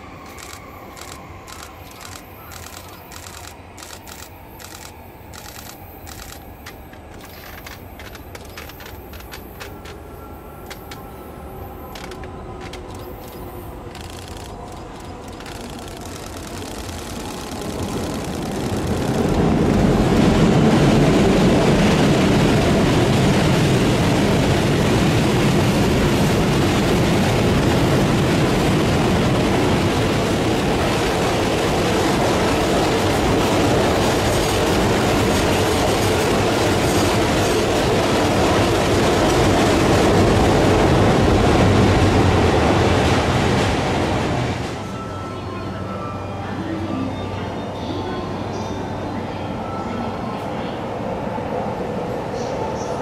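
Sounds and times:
electric train passing: 0.0 - 53.0
wheels rolling over rail joints: 4.8 - 11.1, 11.9 - 20.3.

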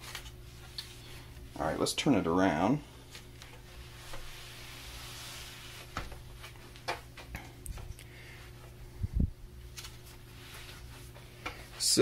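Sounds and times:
soft rubbing on cloth: 3.0 - 6.6, 9.8 - 12.0.

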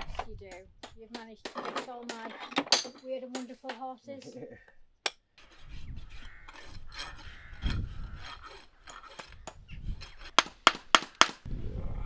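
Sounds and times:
scraping horse's hoof: 5.4 - 11.0
hammer tapping nails: 10.4 - 11.5.

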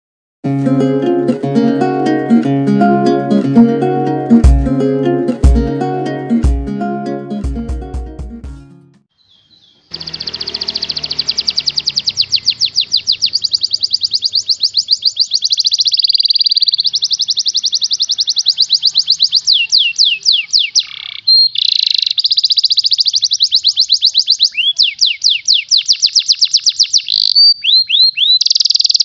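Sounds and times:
canary singing trill: 9.1 - 29.0.

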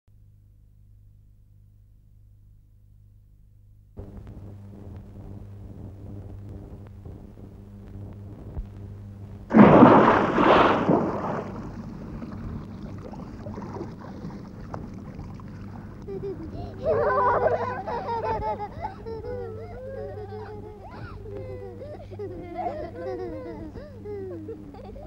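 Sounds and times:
steady low hum: 0.2 - 25.0
low steady hiss: 3.7 - 25.0
sudden loud rush of noise: 9.5 - 12.2.

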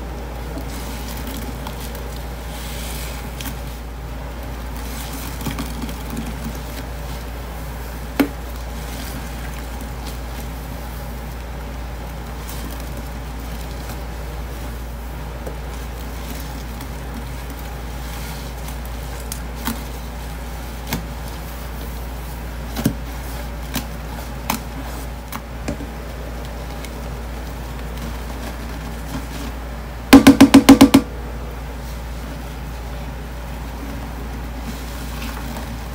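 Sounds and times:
canister shaken and tapped: 30.1 - 31.1.

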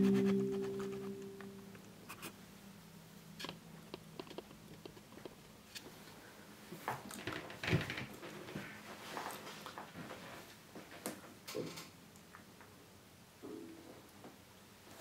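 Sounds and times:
startup chime: 0.0 - 1.6.

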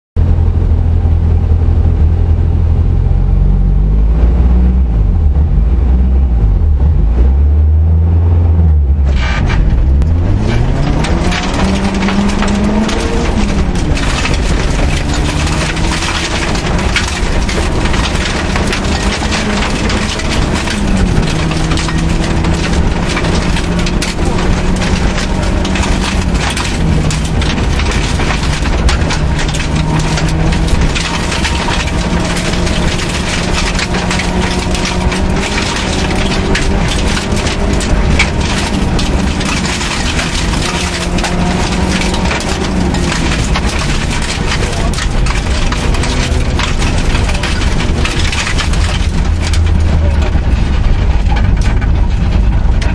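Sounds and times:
car engine accelerating through gears: 0.2 - 52.9
gravel rattling against car underside: 8.8 - 52.9.

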